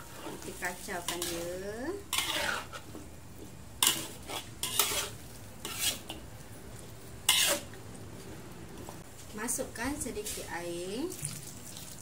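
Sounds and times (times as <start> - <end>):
metal spatula scraping wok: 0.0 - 3.0, 3.8 - 6.2, 7.2 - 7.8.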